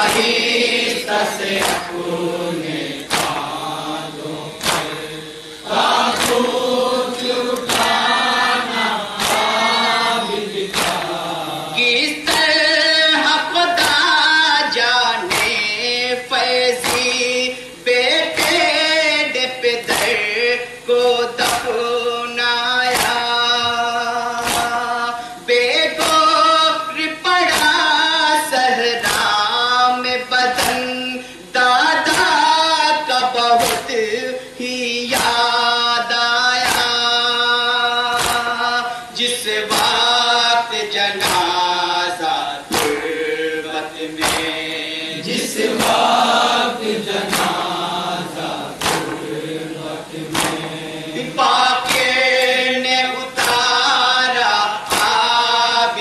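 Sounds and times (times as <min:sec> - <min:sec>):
chest-beating slaps: 0:00.0 - 0:03.7, 0:04.5 - 0:08.4, 0:09.1 - 0:11.3, 0:15.3 - 0:15.7, 0:16.8 - 0:17.2, 0:18.4 - 0:18.7, 0:19.8 - 0:20.3, 0:21.4 - 0:21.8, 0:22.9 - 0:23.8, 0:24.4 - 0:24.8, 0:26.0 - 0:26.4, 0:29.0 - 0:29.4, 0:30.6 - 0:30.9, 0:33.6 - 0:34.0, 0:35.1 - 0:35.4, 0:36.6 - 0:37.0, 0:38.1 - 0:38.6, 0:39.7 - 0:40.1, 0:41.2 - 0:41.6, 0:42.7 - 0:43.5, 0:44.2 - 0:46.6, 0:47.2 - 0:52.7, 0:53.4 - 0:53.8, 0:54.8 - 0:55.4
man singing a lament: 0:00.0 - 0:56.0
men chanting: 0:00.0 - 0:56.0.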